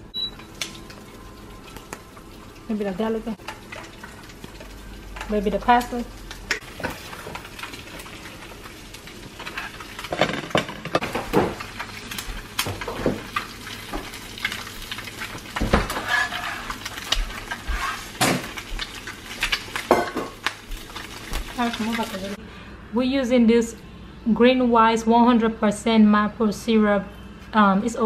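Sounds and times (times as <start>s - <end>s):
eggs sizzling on griddle: 0.3s - 10.3s, 11.0s - 22.4s.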